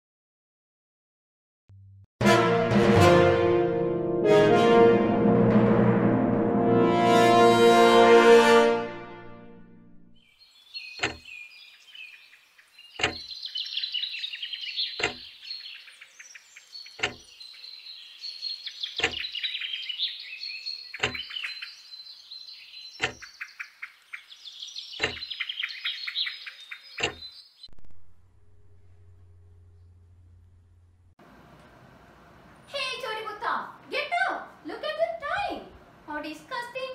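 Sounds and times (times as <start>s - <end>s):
small birds chirping: 10.2s - 27.7s
clock ticking: 11.0s - 11.3s, 13.0s - 13.3s, 15.0s - 15.3s, 17.0s - 17.3s, 19.0s - 19.2s, 21.0s - 21.4s, 23.0s - 23.3s, 25.0s - 25.3s, 27.0s - 27.2s
faint low hum: 27.7s - 33.9s.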